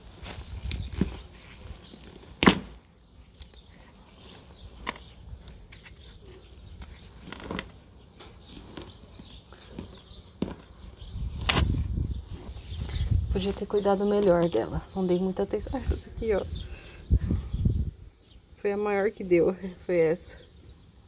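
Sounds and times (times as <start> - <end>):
hand rustling in potting soil: 0.0 - 16.5.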